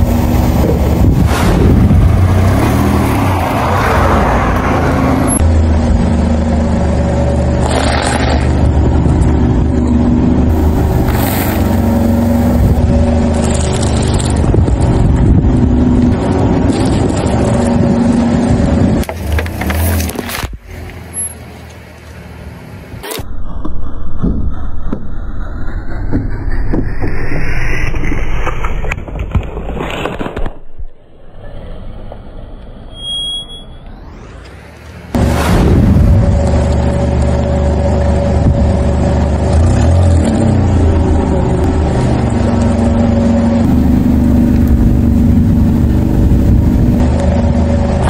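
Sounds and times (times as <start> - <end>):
car engine running: 4.7 - 20.5, 35.1 - 48.0
objects crunching under tyre: 7.6 - 8.8, 28.7 - 30.9.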